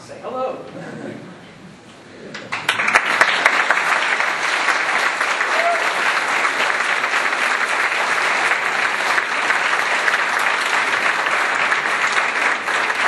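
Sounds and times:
audience applauding: 2.4s - 13.0s.

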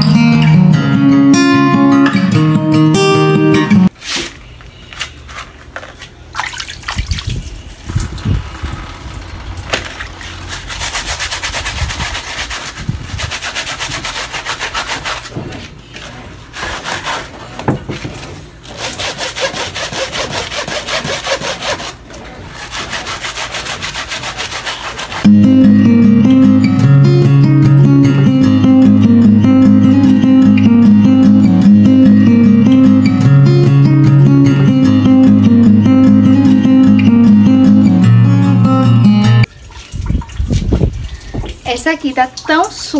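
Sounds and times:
brush scrubbing rubber sandal: 10.1s - 17.5s, 18.7s - 25.2s.

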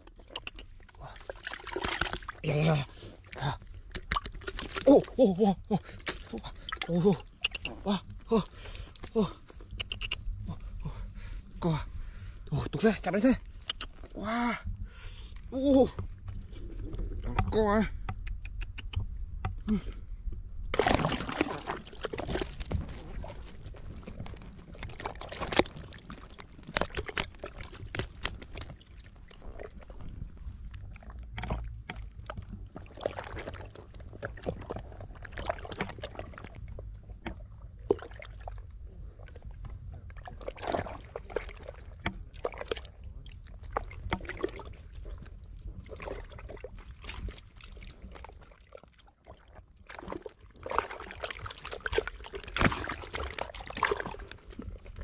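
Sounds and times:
fish flopping on wet mud: 0.2s - 2.5s, 20.7s - 30.4s, 49.5s - 55.0s.

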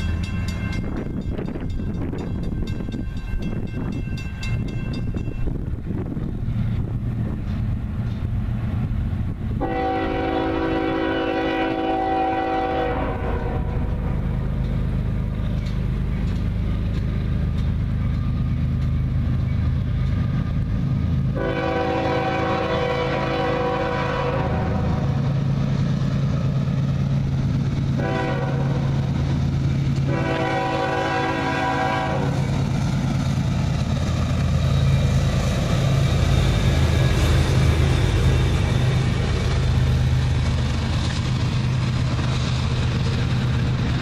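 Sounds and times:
locomotive air horn: 9.6s - 13.9s, 21.3s - 25.2s, 28.0s - 28.9s, 30.0s - 32.5s.

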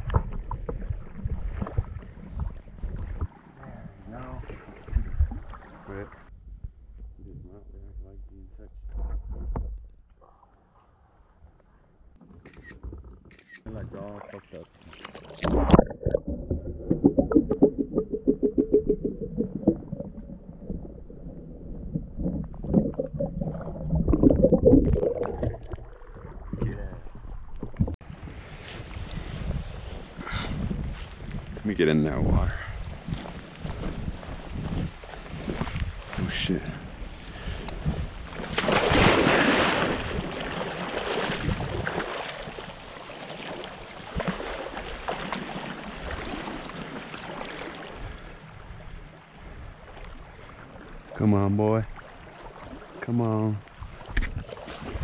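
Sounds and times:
wind on microphone: 0.0s - 3.3s, 4.0s - 8.2s, 26.4s - 42.6s, 53.7s - 55.0s
stream water splashing: 0.0s - 6.3s, 32.8s - 55.0s
stream water running: 13.4s - 55.0s
low thumps: 15.5s - 28.0s
loud water splash: 38.4s - 48.0s.

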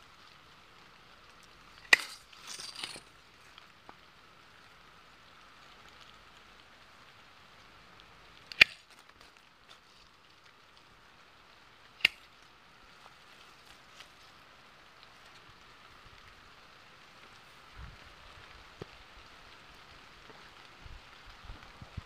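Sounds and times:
faint steady hiss: 0.0s - 22.0s
pruning shears snapping: 1.8s - 3.0s, 8.5s - 9.2s, 12.0s - 12.3s.

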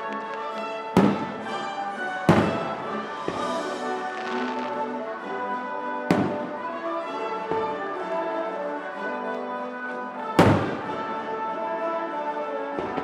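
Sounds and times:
fireworks bursting with bangs: 0.0s - 5.0s, 6.1s - 6.7s, 10.4s - 11.1s
orchestral brass music: 0.0s - 13.0s.

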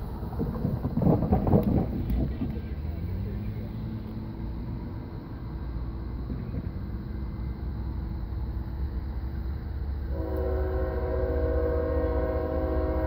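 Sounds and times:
diesel train rumble: 0.0s - 13.0s
train air horn blast: 10.1s - 13.0s.

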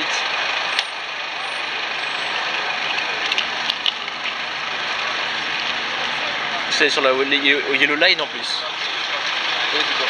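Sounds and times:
city traffic hiss: 0.0s - 10.0s
sharp clicks: 0.7s - 1.0s, 2.8s - 4.4s.

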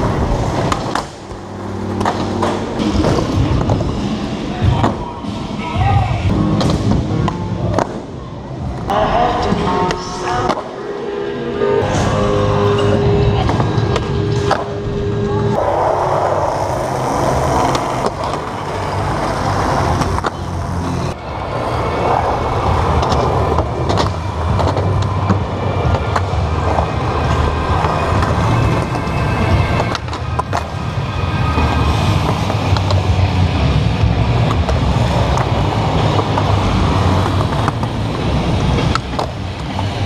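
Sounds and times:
skateboard wheels rolling: 0.0s - 5.5s, 15.5s - 40.0s
skateboard clacking: 15.6s - 21.2s, 22.0s - 33.4s.

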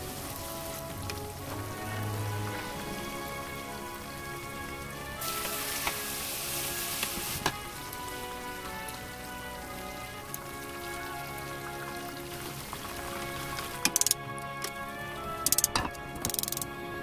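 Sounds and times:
fish deep-frying in hot oil: 4.3s - 14.2s
sharp ticks: 13.9s - 14.2s, 15.4s - 16.7s.

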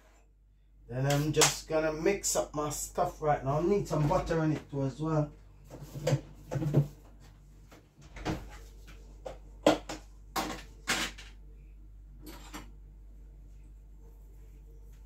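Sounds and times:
kitchen knocks and clatters: 5.6s - 7.2s, 8.0s - 11.4s, 12.2s - 12.8s.

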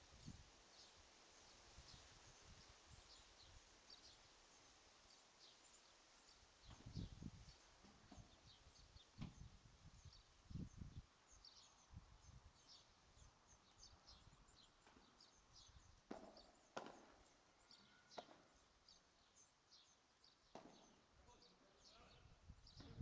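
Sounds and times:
small birds chirping: 0.0s - 23.0s
ball knocking off rackets: 16.1s - 17.1s.

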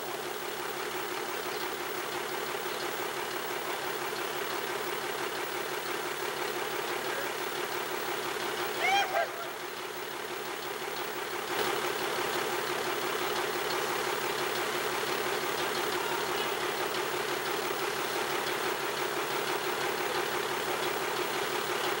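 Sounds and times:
crane engine running: 0.0s - 22.0s.

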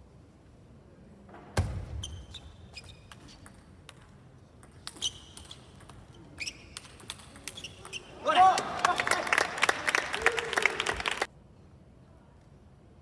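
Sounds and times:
shoes squeaking on floor: 2.0s - 3.4s, 4.9s - 8.2s.

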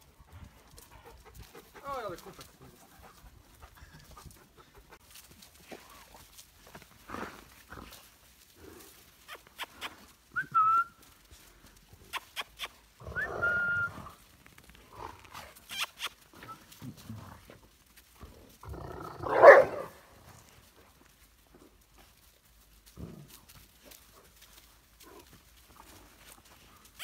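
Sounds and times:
puppies squeaking: 15.7s - 16.7s.

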